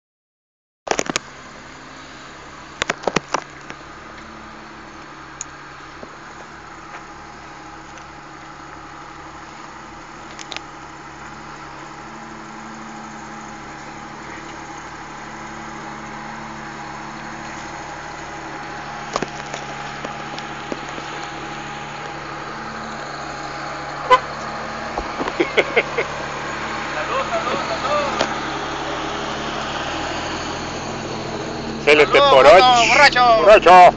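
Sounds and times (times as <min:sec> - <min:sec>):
car engine crawling: 0:00.9 - 0:33.9
sharp clicks and knocks: 0:02.8 - 0:04.3.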